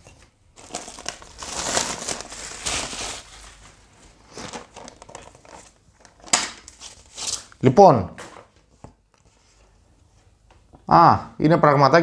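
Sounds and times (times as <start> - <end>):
packaging crinkling: 0.5 - 7.5.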